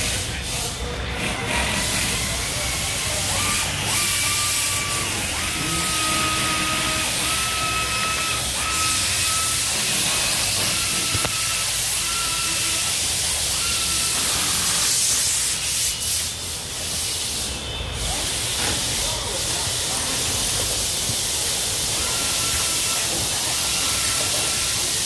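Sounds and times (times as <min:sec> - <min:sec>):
steady factory hiss: 0:00.0 - 0:25.0
high-pitched machine whine: 0:01.7 - 0:15.8.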